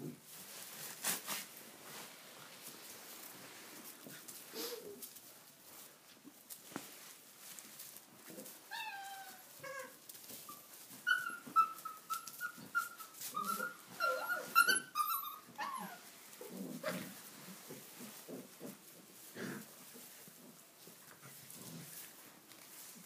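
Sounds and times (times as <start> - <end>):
puppies yelping and whining: 8.7 - 16.1.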